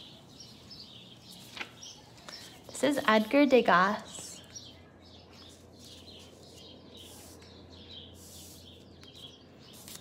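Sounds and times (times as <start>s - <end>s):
small birds chirping: 0.0s - 10.0s
paper cards rustling: 5.3s - 10.0s.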